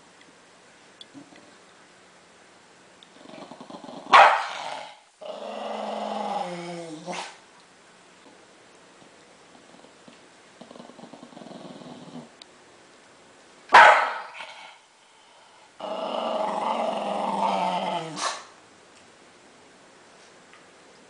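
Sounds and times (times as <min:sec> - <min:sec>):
small dog growling: 0:03.1 - 0:07.4, 0:09.5 - 0:12.4, 0:15.8 - 0:18.5
dog barking: 0:04.1 - 0:04.5, 0:13.7 - 0:14.4.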